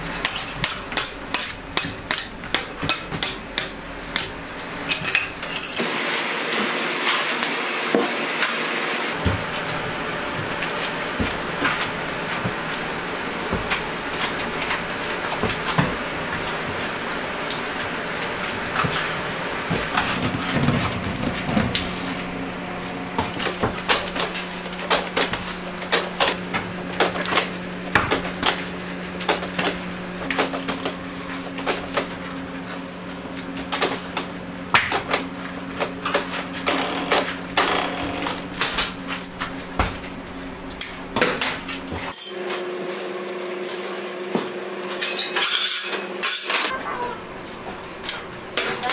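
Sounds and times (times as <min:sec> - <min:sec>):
metal tools clinking on steel table: 0:04.9 - 0:05.8, 0:42.1 - 0:42.8, 0:45.0 - 0:46.8
steady low hum: 0:46.7 - 0:48.9.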